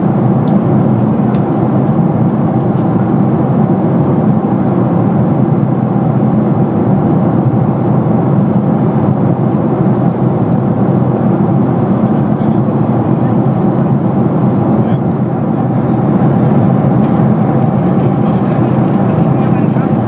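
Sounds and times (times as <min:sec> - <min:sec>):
airplane cabin engine drone: 0:00.0 - 0:20.0.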